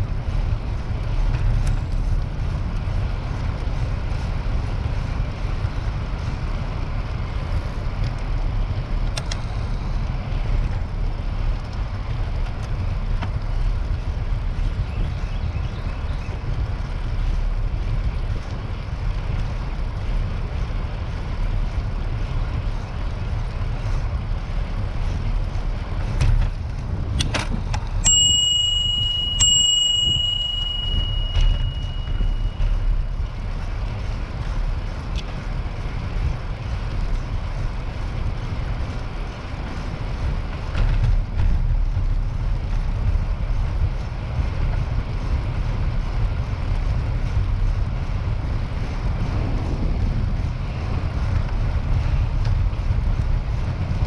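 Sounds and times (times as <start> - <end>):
wind rumble on microphone: 0.0 - 54.0
bicycle bell ringing: 28.0 - 33.1.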